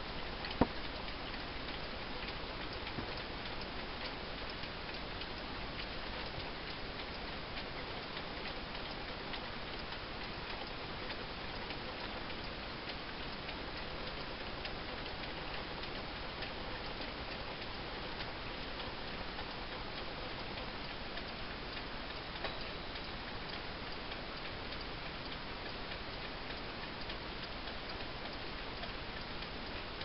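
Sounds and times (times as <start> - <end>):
steady background hiss: 0.0 - 30.0
wall clock ticking: 0.0 - 30.0.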